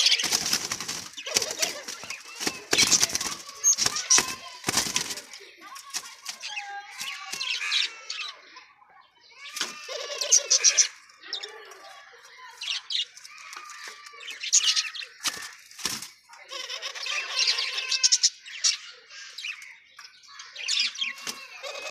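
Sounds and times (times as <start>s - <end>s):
doves wing flapping: 0.0s - 7.8s, 15.1s - 16.3s, 21.1s - 21.9s.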